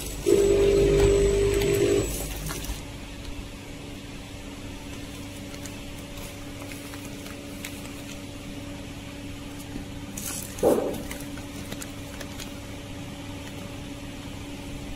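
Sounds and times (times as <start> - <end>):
steady machine hum: 0.0 - 14.9
plastic sachets crinkling: 2.1 - 2.9, 4.8 - 8.8, 9.4 - 13.8.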